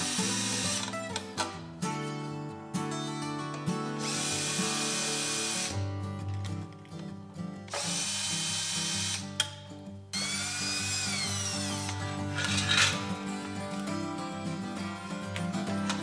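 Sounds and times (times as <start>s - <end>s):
cordless drill running: 0.0s - 1.0s, 4.0s - 5.8s, 7.7s - 9.3s, 10.2s - 12.9s
background music: 0.0s - 16.0s.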